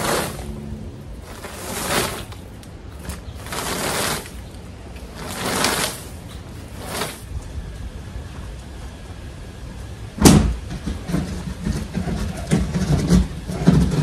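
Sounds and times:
rake dragged through dead leaves: 0.0s - 7.4s.

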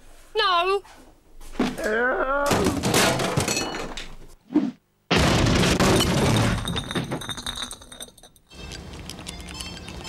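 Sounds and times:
loud crash: 5.1s - 7.2s
clattering and tinkling debris: 6.0s - 8.5s.

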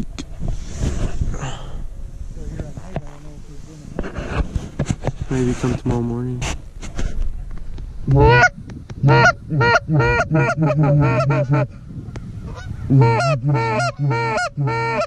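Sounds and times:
geese honking: 8.1s - 11.8s, 12.4s - 15.0s.

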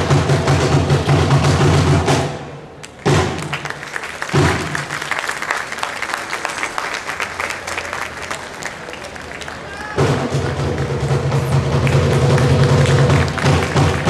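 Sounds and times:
audience applauding: 2.8s - 10.9s, 11.7s - 14.0s.

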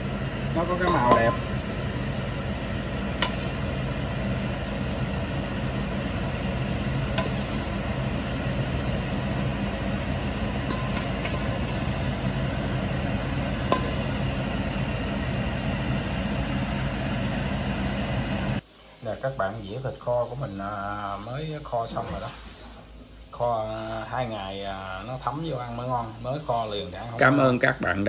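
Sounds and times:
fan-like hum: 0.0s - 28.0s
ladle clinking against pot: 10.7s - 11.8s, 13.7s - 14.2s.

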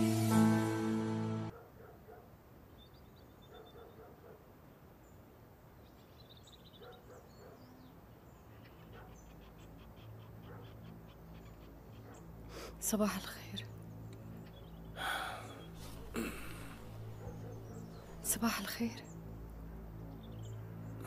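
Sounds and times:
faint bird chirps: 2.7s - 4.0s.

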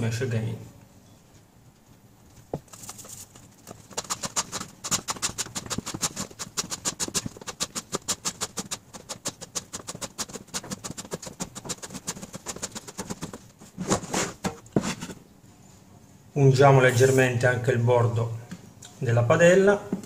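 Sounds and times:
dough handling sounds: 1.4s - 15.3s
hands patting dough: 2.3s - 15.0s.

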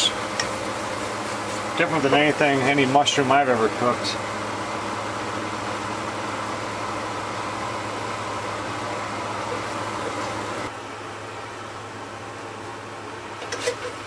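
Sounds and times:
mushrooms sizzling in butter: 0.0s - 2.9s.

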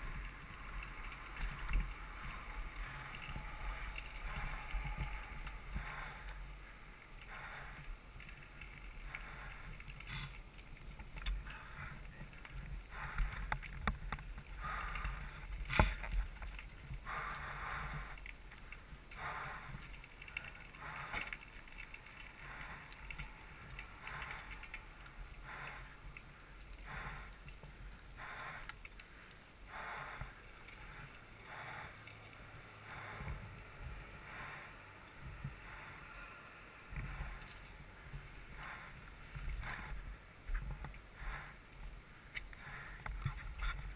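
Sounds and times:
bike rattling: 0.0s - 29.6s
low rumble: 0.0s - 43.9s.

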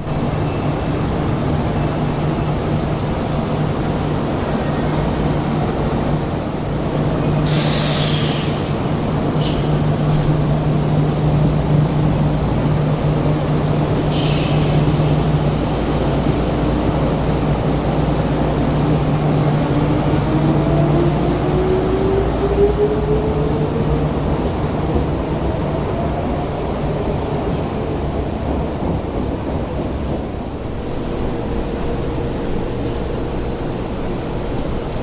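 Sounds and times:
electric train humming: 0.0s - 35.0s
air brakes hissing: 7.4s - 10.2s, 14.0s - 16.5s.

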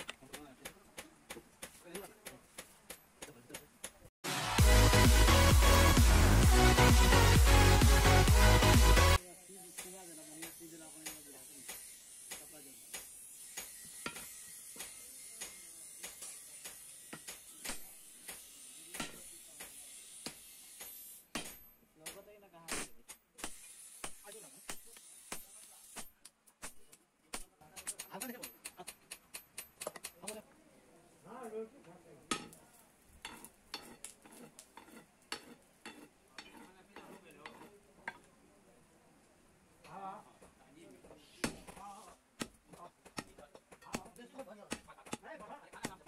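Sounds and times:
hammer striking hot iron on anvil: 9.7s - 30.4s, 32.3s - 32.6s, 33.2s - 38.3s, 42.4s - 46.0s.

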